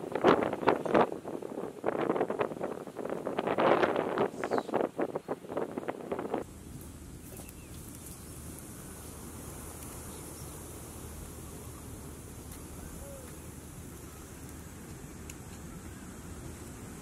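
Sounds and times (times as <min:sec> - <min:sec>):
low rumble of wind: 0:00.0 - 0:17.0.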